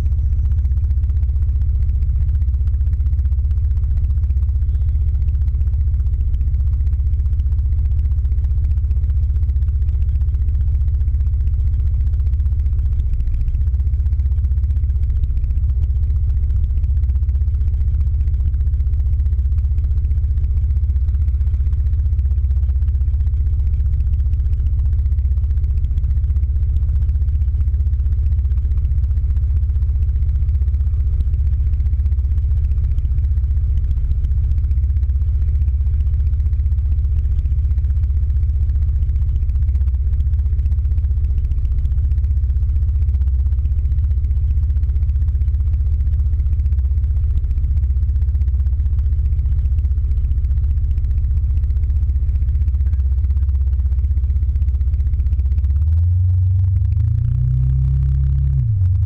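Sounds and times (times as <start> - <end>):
scooter engine idling: 0.0 - 59.0.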